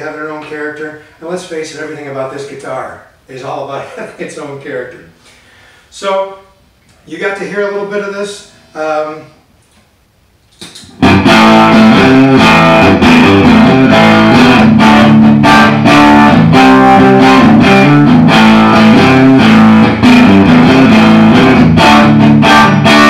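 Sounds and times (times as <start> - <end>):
electric guitar strummed chords: 11.0 - 23.0.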